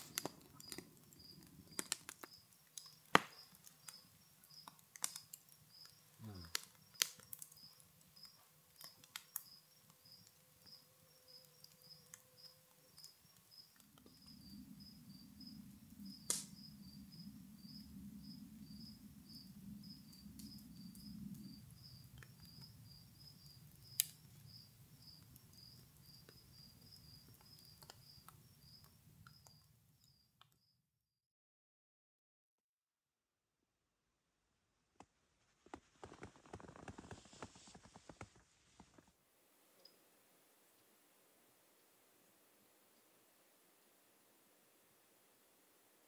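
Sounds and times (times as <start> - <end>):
campfire crackling and popping: 0.0 - 30.6, 35.6 - 41.0
crickets chirping: 0.0 - 30.7.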